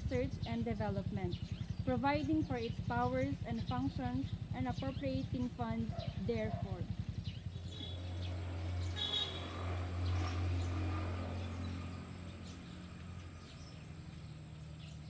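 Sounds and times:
bird chirps: 1.2s - 15.0s.

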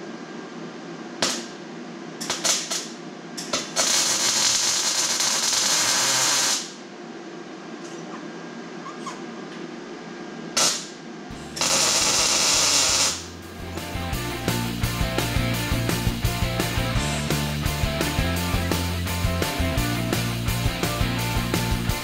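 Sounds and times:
welding arc crackling: 2.2s - 6.8s, 10.6s - 13.6s
music with a beat: 13.6s - 22.0s.

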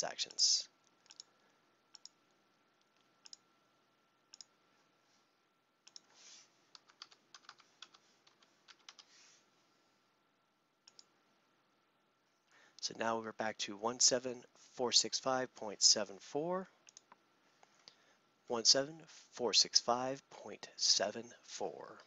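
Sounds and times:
computer mouse clicks: 1.0s - 1.3s, 1.9s - 2.2s, 2.8s - 3.4s, 4.3s - 4.5s, 5.8s - 6.1s, 10.8s - 11.1s, 16.8s - 17.2s
keyboard typing: 1.0s - 1.3s, 5.8s - 6.1s, 6.7s - 9.1s, 10.9s - 11.1s.

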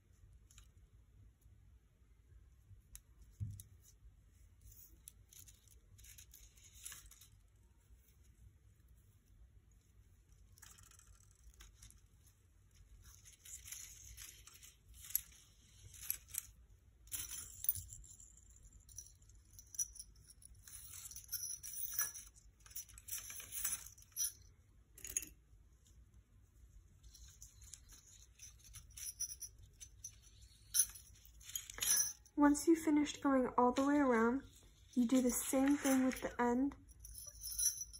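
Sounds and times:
scratchy rustling of twine on paper: 3.7s - 17.6s, 33.7s - 37.9s.

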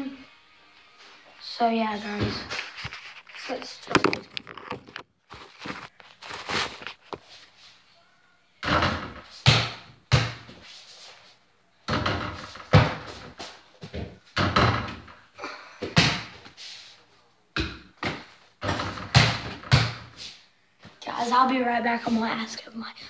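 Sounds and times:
ball thudding against hoop and door: 8.6s - 10.6s, 11.9s - 13.3s, 13.9s - 15.1s, 17.6s - 20.2s.

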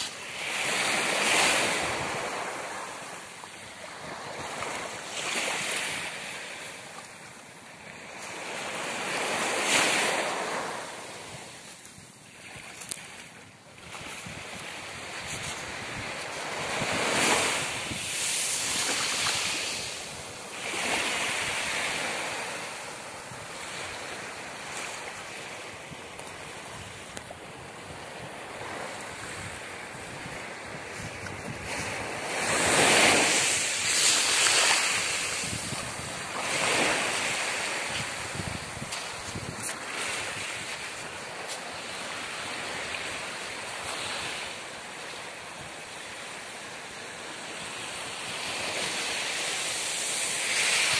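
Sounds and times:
small waves washing on beach: 0.0s - 50.9s
wind buffeting microphone: 22.8s - 43.2s.

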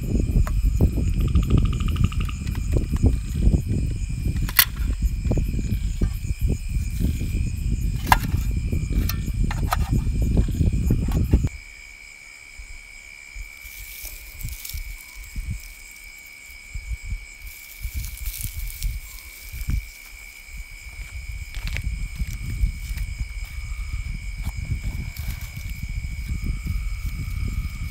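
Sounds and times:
loud low rumble: 0.0s - 9.5s
night insects trilling: 0.0s - 27.9s.

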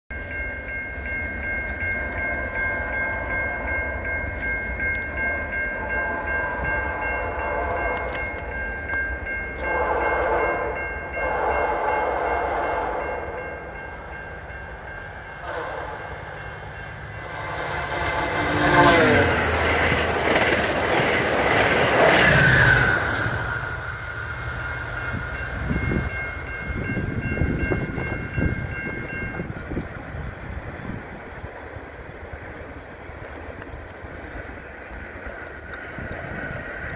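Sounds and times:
rumble of passing train: 0.1s - 36.9s
train horn blasts: 5.8s - 8.4s, 9.5s - 13.5s, 15.3s - 16.5s, 17.1s - 19.4s.

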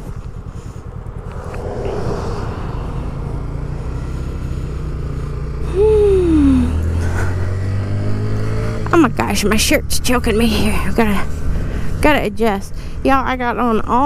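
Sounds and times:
motorcycle engine accelerating: 0.0s - 9.2s
truck rushing past: 0.4s - 8.6s
wind on microphone: 0.9s - 5.1s.

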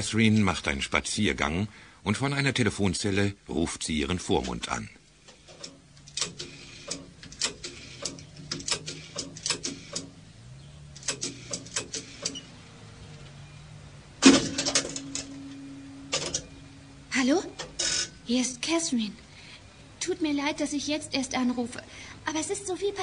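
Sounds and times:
steady low phone tone: 3.9s - 23.0s
payphone clatter: 5.3s - 10.2s, 11.0s - 12.6s, 14.2s - 16.6s, 17.5s - 18.2s
payphone clicks and knocks: 5.5s - 10.2s, 14.2s - 16.6s, 17.5s - 18.2s.

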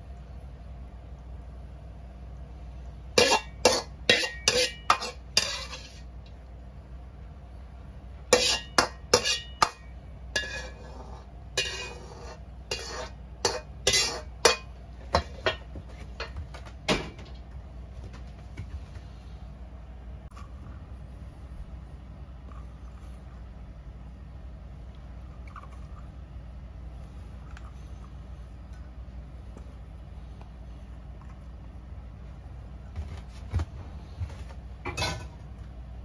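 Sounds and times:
metal ladle clanking on a wok: 3.2s - 6.1s, 8.3s - 10.9s, 11.6s - 16.4s.

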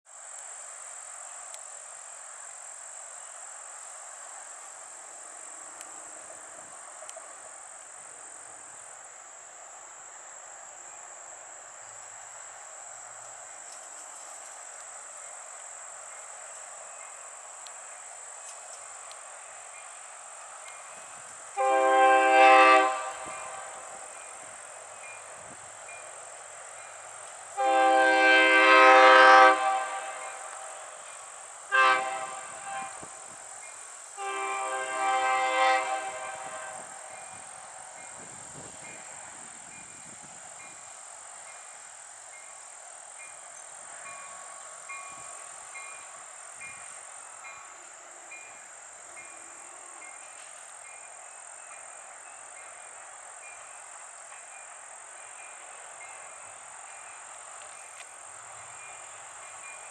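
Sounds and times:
outdoor background noise: 0.0s - 59.9s
train horn blasts: 21.5s - 24.3s, 27.5s - 33.4s, 34.2s - 37.5s.

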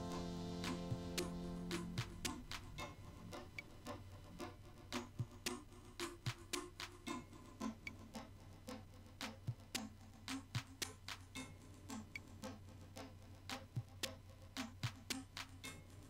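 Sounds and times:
ticking beat: 0.0s - 3.7s.

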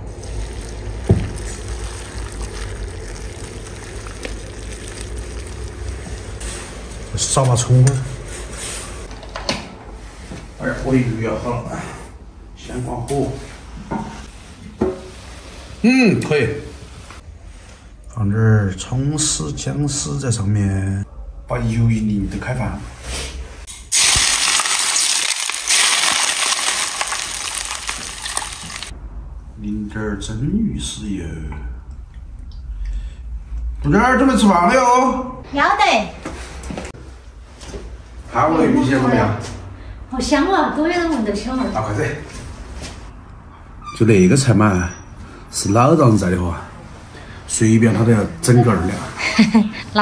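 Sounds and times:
boiling water pouring into bowl: 0.0s - 6.5s, 23.9s - 28.9s
hot oil sizzling and crackling: 0.0s - 6.8s, 23.7s - 29.0s.

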